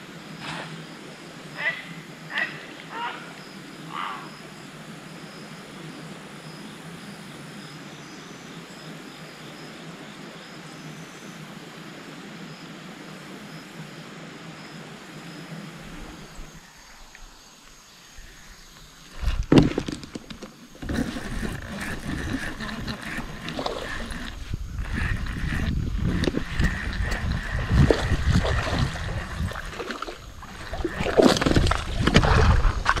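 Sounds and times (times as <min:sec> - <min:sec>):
outdoor hiss beside a creek: 0:00.0 - 0:33.0
short voice-like calls: 0:01.6 - 0:04.4.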